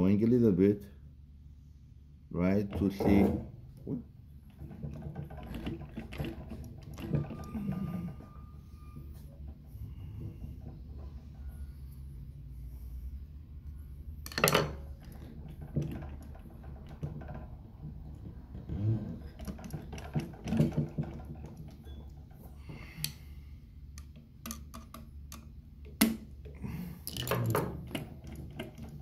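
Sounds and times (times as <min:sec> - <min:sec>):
screwdriver clicks and metal knocks: 0:24.0 - 0:26.2.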